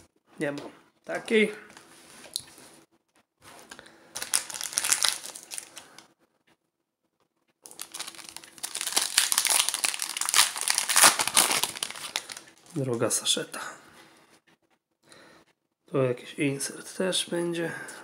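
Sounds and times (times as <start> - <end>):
foil wrapper crinkling: 3.6 - 6.0, 7.6 - 12.8.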